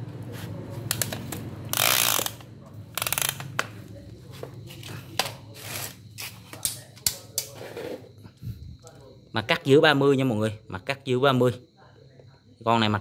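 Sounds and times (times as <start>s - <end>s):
tape measure rattling out: 1.7s - 3.6s.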